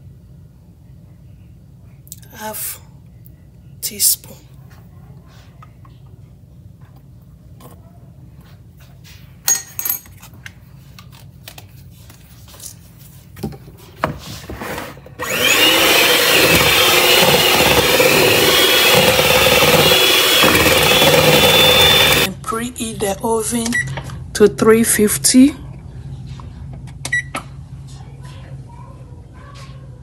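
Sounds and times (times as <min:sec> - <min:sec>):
electric hand mixer whirring: 0:15.2 - 0:22.3.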